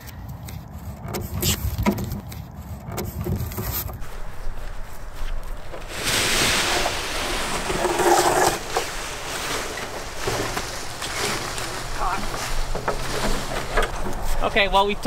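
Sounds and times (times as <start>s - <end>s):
paraglider wing fabric rustling: 3.4s - 14.6s.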